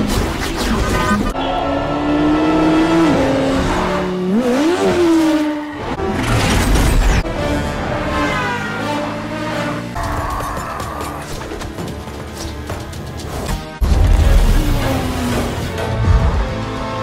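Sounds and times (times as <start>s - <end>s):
background music: 7.2s - 17.0s.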